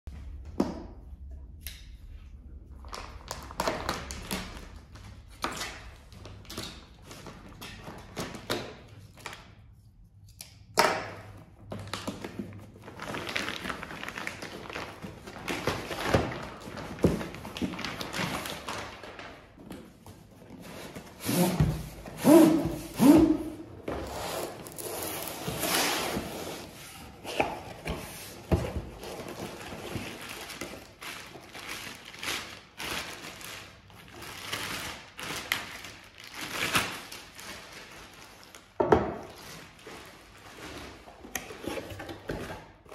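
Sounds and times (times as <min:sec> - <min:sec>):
plastic shrink-wrap crinkling: 0:11.8 - 0:20.0, 0:29.0 - 0:41.7.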